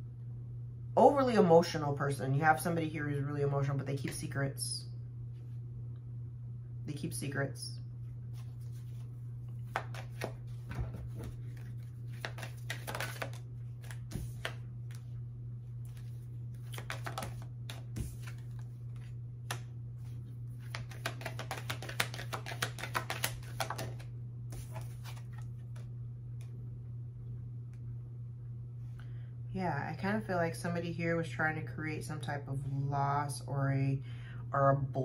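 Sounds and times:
steady low hum: 0.0 - 35.0
cards shuffling: 8.3 - 15.2, 15.8 - 25.9.

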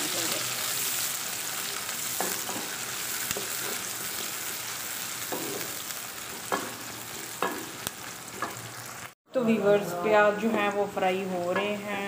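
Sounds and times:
onions sizzling in oil: 0.0 - 9.2, 10.0 - 12.0.

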